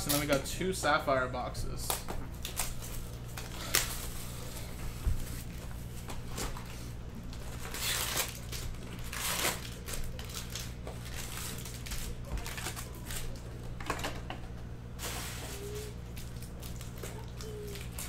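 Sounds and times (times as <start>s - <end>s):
plastic shrink-wrap crinkling and tearing: 0.0s - 0.4s, 1.8s - 4.6s, 6.1s - 13.6s, 15.0s - 18.0s.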